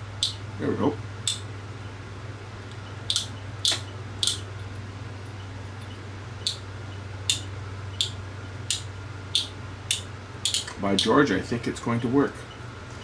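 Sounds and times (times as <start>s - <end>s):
steady low hum: 0.0s - 13.0s
lamp switch clicks: 0.2s - 0.4s, 1.2s - 1.4s, 3.1s - 4.5s, 7.3s - 11.1s.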